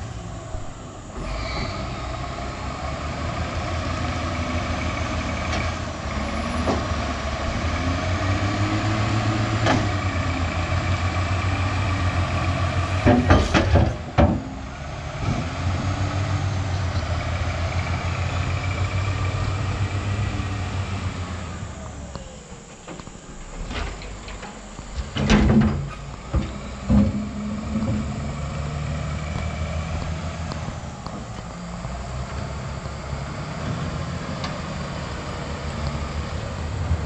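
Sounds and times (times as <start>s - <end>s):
diesel engine running hard: 0.0s - 37.0s
rock and soil dumping thuds: 12.9s - 14.6s, 22.8s - 28.4s.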